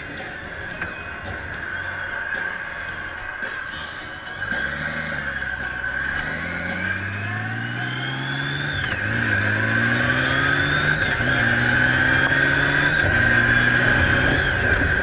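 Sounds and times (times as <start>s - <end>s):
steady high whine: 0.0s - 15.0s
motorcycle engine accelerating: 4.3s - 15.0s.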